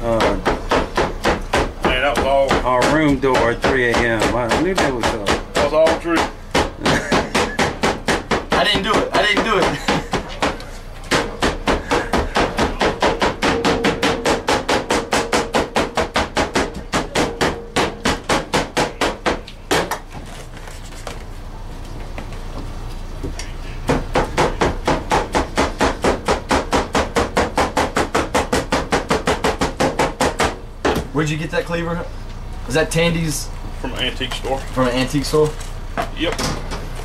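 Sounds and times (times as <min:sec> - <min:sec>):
cleaver chopping meat: 0:00.0 - 0:20.1, 0:23.8 - 0:31.0.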